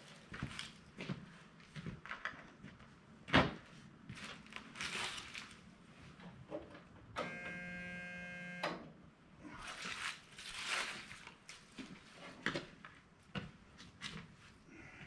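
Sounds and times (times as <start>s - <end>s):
footsteps and scuffs: 0.0s - 2.1s
rustling: 4.2s - 5.7s, 9.6s - 12.4s
steady buzzing tone: 7.2s - 8.8s.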